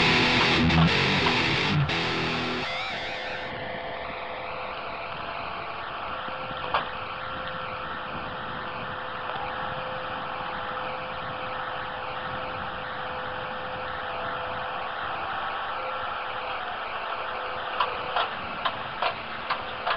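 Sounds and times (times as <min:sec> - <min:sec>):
tractor engine running: 0:00.0 - 0:02.7.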